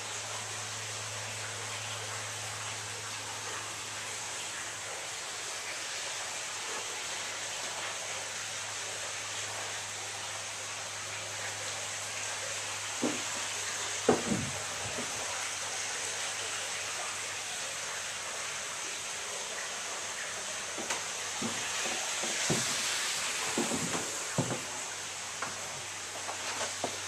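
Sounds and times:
steady rushing hiss: 0.0 - 27.0
light knocks and clicks: 13.0 - 13.4, 14.1 - 15.2, 20.8 - 22.8, 23.5 - 24.7.

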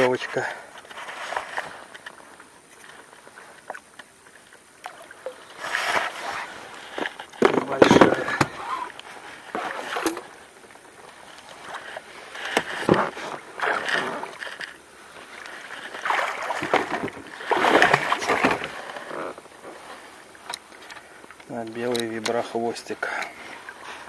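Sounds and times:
water splashing: 2.8 - 24.0.

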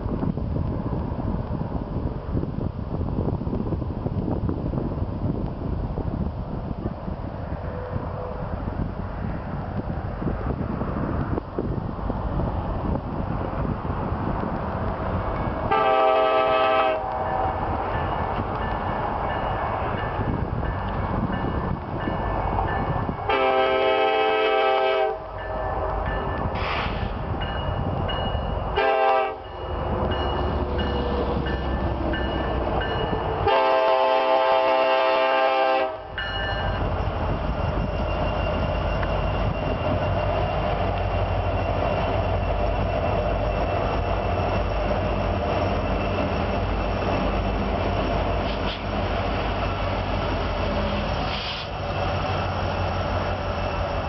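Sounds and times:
diesel engines rumbling under load: 10.2 - 54.0
locomotive air horn blasts: 15.7 - 17.2, 23.3 - 25.4, 28.8 - 29.5, 33.4 - 36.2.

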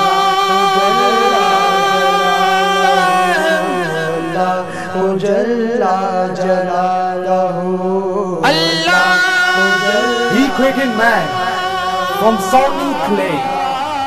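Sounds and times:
held vocal drone: 0.0 - 14.0
men singing devotional chant: 0.0 - 14.0.

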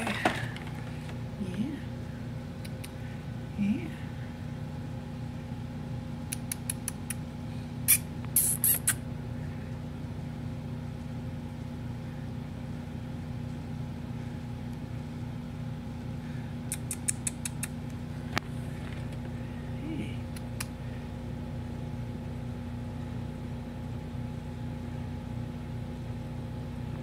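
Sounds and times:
steady low hum: 0.0 - 27.0
kitten licking clicks: 2.6 - 3.0, 6.3 - 7.2, 16.7 - 18.0.

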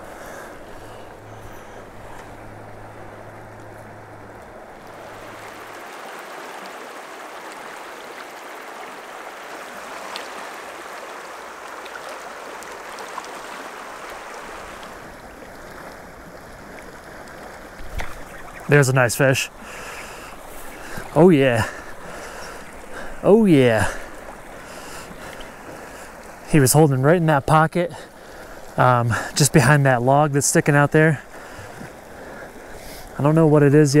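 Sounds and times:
river water rushing over rocks: 0.0 - 26.7.

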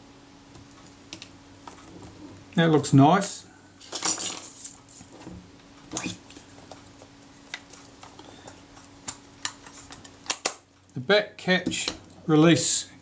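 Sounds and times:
faint steady hum: 0.0 - 13.0
small parts set down: 3.8 - 4.8.

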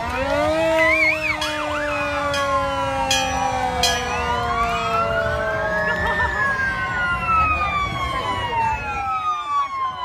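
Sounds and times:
fire engine siren falling tone: 0.0 - 10.0
fire engine siren sweeping: 0.0 - 10.0.

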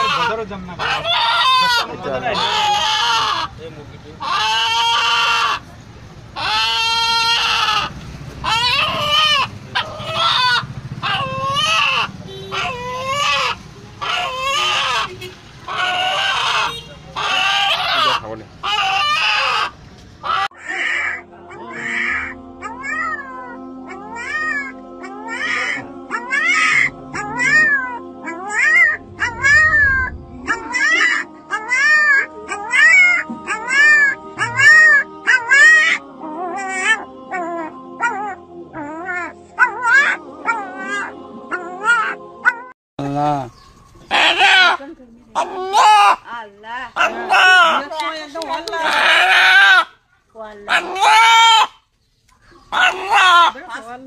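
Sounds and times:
rooster calling: 0.0 - 3.6, 4.2 - 5.7, 6.4 - 42.7, 44.1 - 44.8, 45.4 - 46.3, 47.0 - 48.0, 48.8 - 50.0, 50.7 - 51.8, 52.7 - 53.9
background music drone: 20.6 - 42.7.

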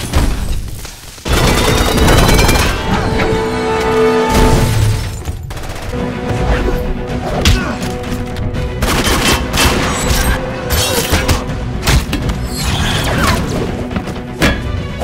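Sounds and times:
dramatic score music: 1.2 - 15.0.

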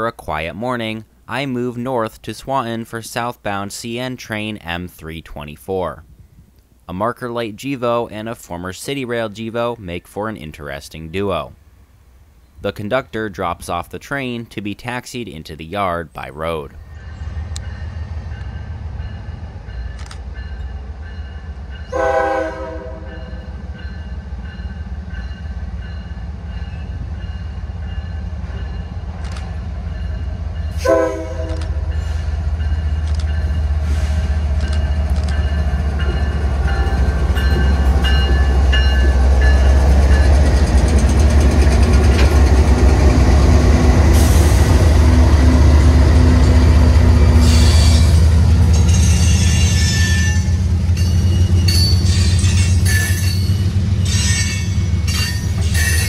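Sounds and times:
diesel locomotives rumbling: 14.8 - 56.0
train horn blast: 21.9 - 23.4, 30.7 - 32.2.

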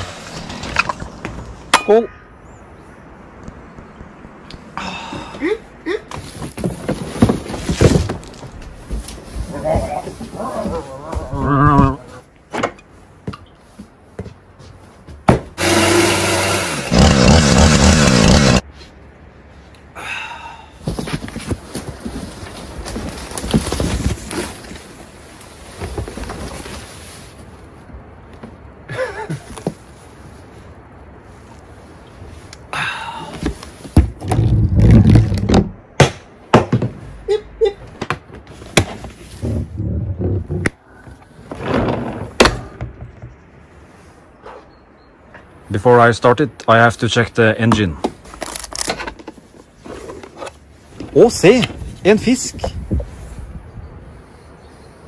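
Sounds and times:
small knocks and rustles: 6.1 - 15.6, 20.8 - 27.3
chainsaw cutting cardboard: 15.6 - 18.6
chainsaw running at high revs: 15.6 - 18.6.

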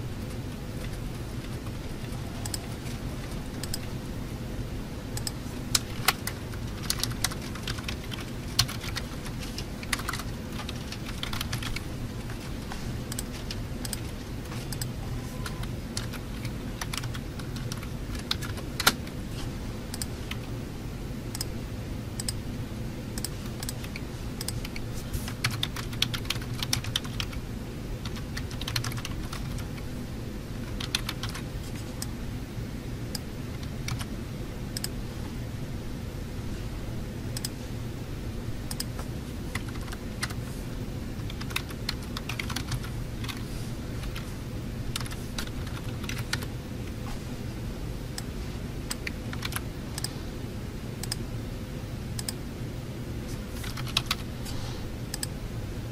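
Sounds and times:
low background hum: 0.0 - 55.9
keyboard typing clicks: 0.3 - 3.9, 5.2 - 19.2, 19.9 - 20.4, 21.3 - 21.5, 22.2 - 22.4, 23.2 - 27.4, 28.0 - 29.8, 30.6 - 31.4, 34.8 - 35.0, 38.7 - 40.4, 41.2 - 43.4, 45.0 - 46.5, 48.9 - 50.1, 51.0 - 51.2, 52.2 - 52.4, 53.6 - 54.3, 55.1 - 55.4.

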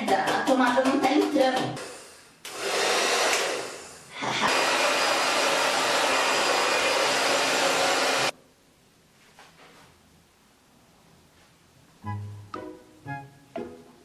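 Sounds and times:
hair dryer blowing: 1.8 - 8.3.

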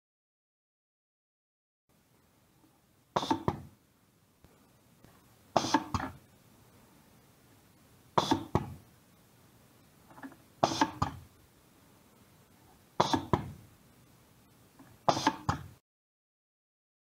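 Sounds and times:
hiss of exhausting air: 5.5 - 6.1, 10.6 - 11.2
pneumatic cylinder clacking: 10.2 - 11.2.

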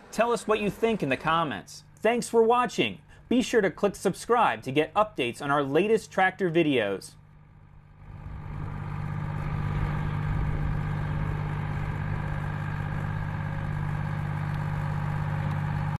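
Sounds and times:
tractor engine driving by: 0.0 - 6.5, 7.1 - 16.0.

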